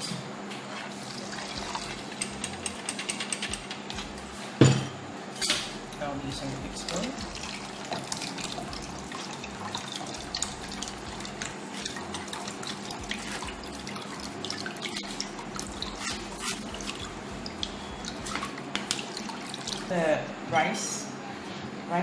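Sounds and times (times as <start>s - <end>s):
water dripping through a sieve: 6.4s - 20.0s.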